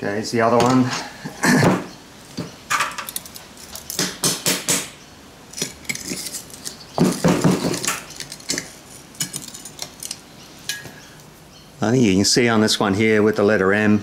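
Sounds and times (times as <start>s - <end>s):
metallic clinks and knocks: 5.5s - 10.9s.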